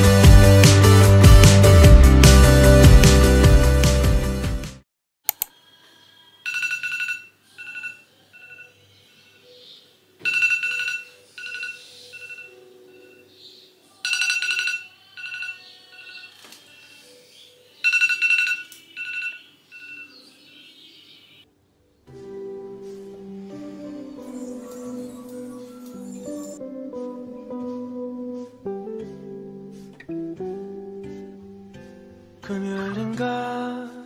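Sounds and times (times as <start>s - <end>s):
smartphone chime: 6.4s - 8.8s, 10.2s - 13.3s, 14.0s - 16.4s, 17.8s - 20.7s.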